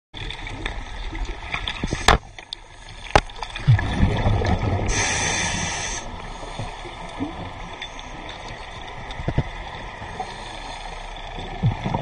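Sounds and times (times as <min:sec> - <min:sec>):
low gurgling: 0:00.2 - 0:12.0
muffled underwater noise: 0:04.5 - 0:11.0
steady hiss: 0:04.8 - 0:07.1.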